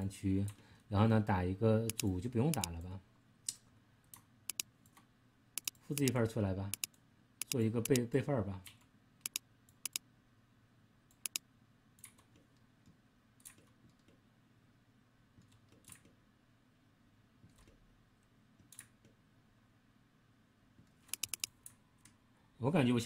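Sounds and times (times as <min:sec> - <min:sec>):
faint room hum: 0:00.0 - 0:23.0
computer mouse clicking: 0:01.9 - 0:02.8, 0:03.5 - 0:10.0, 0:11.1 - 0:11.4, 0:12.0 - 0:14.2, 0:15.4 - 0:16.2, 0:18.6 - 0:19.2, 0:20.9 - 0:22.2.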